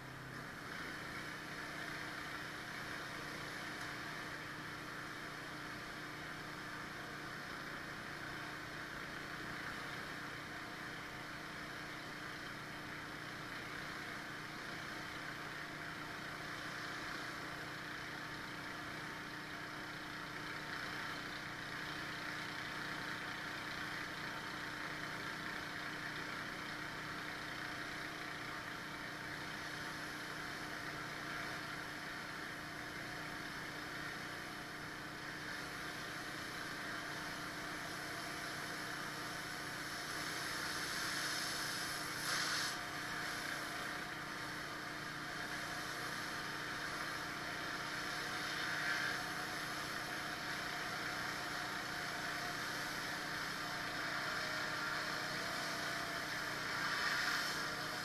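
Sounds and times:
pressure washer engine humming: 0:00.0 - 0:58.0
high-pressure water hissing: 0:38.4 - 0:50.8, 0:54.7 - 0:58.0.

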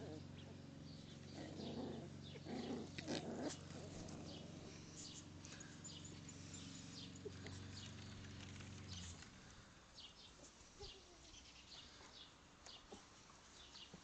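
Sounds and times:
puppies play-fighting noises: 0:00.0 - 0:09.3.

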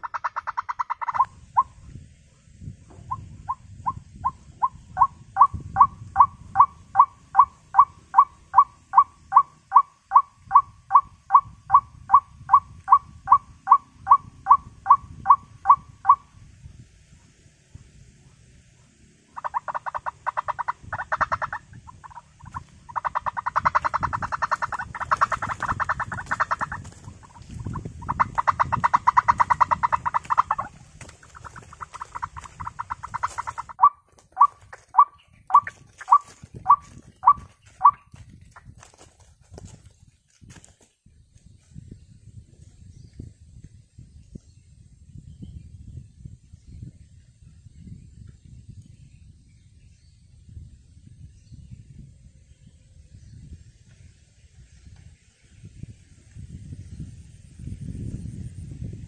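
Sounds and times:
waterhen calls: 0:00.0 - 0:01.8, 0:03.1 - 0:16.3, 0:19.3 - 0:38.1.

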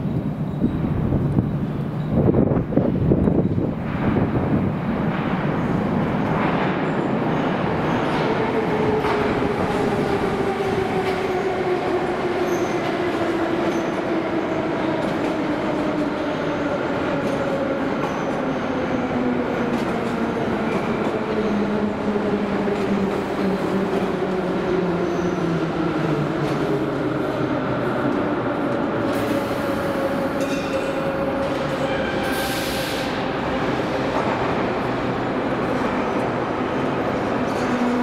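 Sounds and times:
train wheels rumbling on rails: 0:00.0 - 0:38.0
train brakes whining: 0:29.1 - 0:33.4
train hiss: 0:32.2 - 0:33.3.

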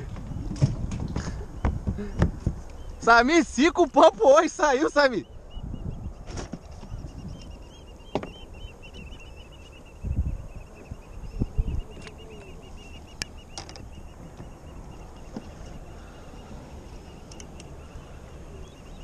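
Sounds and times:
wind and water rumble: 0:00.0 - 0:19.0
knocks on kayak: 0:08.1 - 0:08.4
light clicks: 0:17.2 - 0:17.8.

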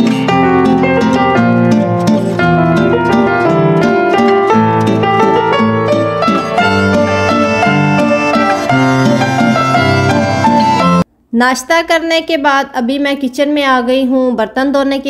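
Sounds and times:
plucked string notes: 0:00.0 - 0:11.0
steady bass line: 0:04.6 - 0:11.0.

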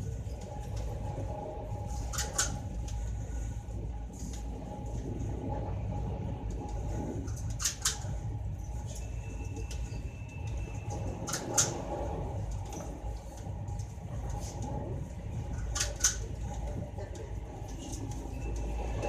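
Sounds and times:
faint hum: 0:00.0 - 0:19.0
vehicle rumbling: 0:00.0 - 0:19.0
sharp clicks and rattles: 0:06.5 - 0:08.2.

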